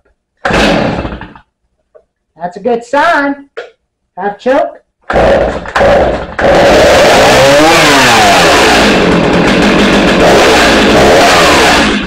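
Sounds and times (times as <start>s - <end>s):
chainsaw engine revving: 0.4s - 1.5s, 5.1s - 12.0s.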